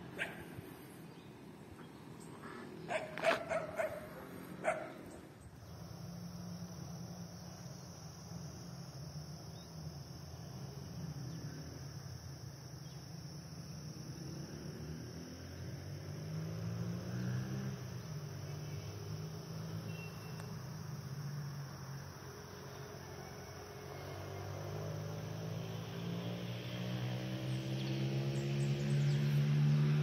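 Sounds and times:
crickets chirring: 0.0s - 30.0s.

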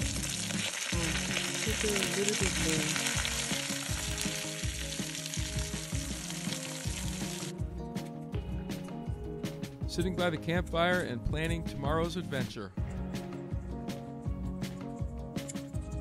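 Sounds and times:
fish sizzling on a grill: 0.0s - 7.5s
faint background music: 0.0s - 16.0s.

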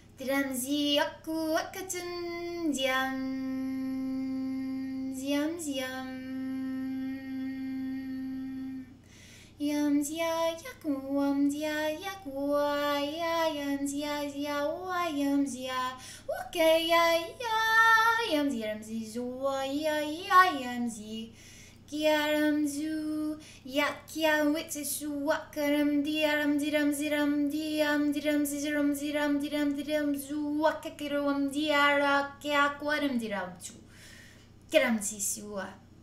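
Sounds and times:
woman chanting wordless syllables: 9.6s - 21.3s, 21.9s - 33.8s, 34.7s - 35.9s.

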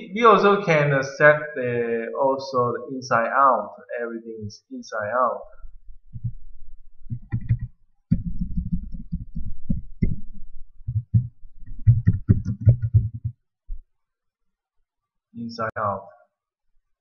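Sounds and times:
keyboard keys tapping: 6.1s - 6.4s, 7.0s - 13.8s.

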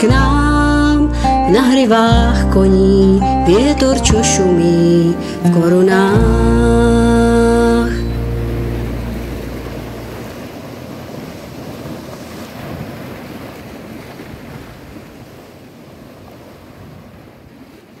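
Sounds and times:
low song note: 0.1s - 10.3s
waves washing over rocks: 5.2s - 18.0s.

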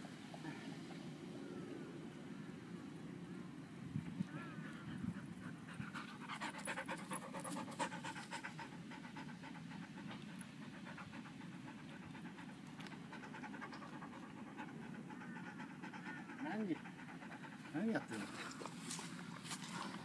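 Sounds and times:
dog panting: 4.6s - 20.0s.

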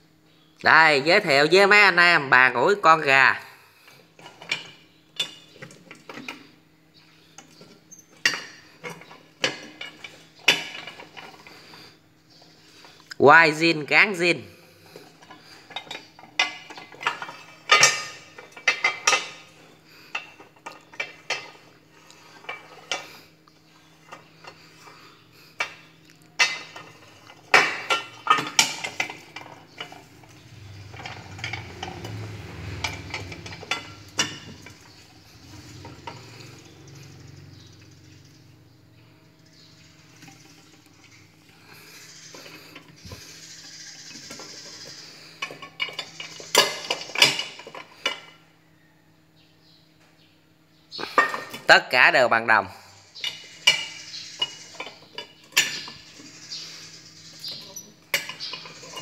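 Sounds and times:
metal iron clicking and clanking: 4.2s - 6.4s, 7.4s - 11.5s, 15.0s - 23.1s, 25.6s - 38.3s, 42.3s - 48.4s, 53.2s - 56.4s, 57.4s - 59.0s
metal scraping: 14.8s - 38.6s.

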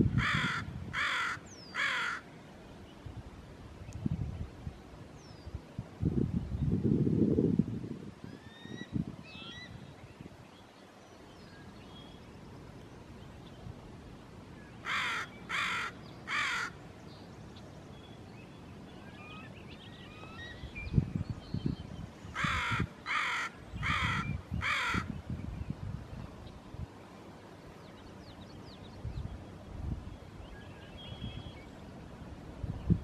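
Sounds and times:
crow cawing: 0.2s - 2.2s, 14.8s - 16.8s, 22.4s - 25.1s.

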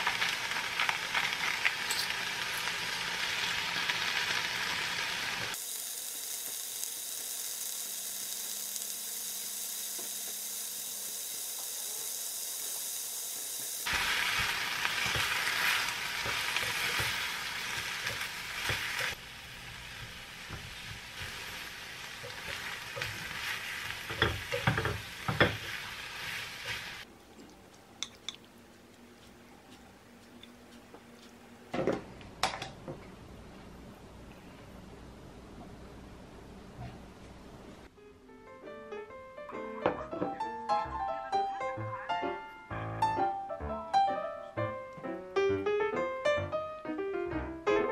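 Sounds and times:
cabbage sizzling in a pan: 0.0s - 27.1s
chopsticks clicking against pan: 27.7s - 31.4s.

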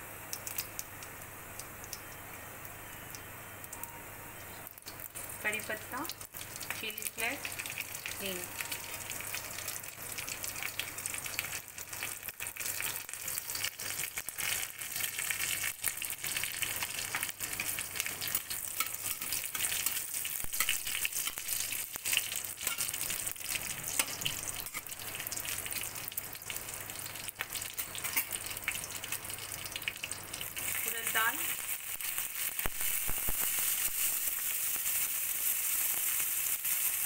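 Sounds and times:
spices sizzling in hot oil: 0.0s - 37.0s
sharp crackles: 30.8s - 35.2s.

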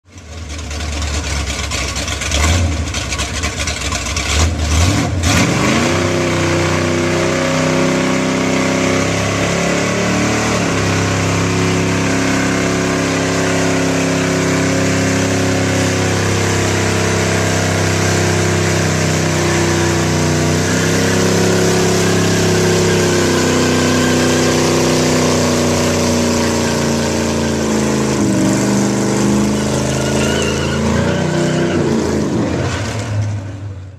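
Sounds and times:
car engine revving: 1.2s - 33.6s
tyres screeching: 10.4s - 33.0s.

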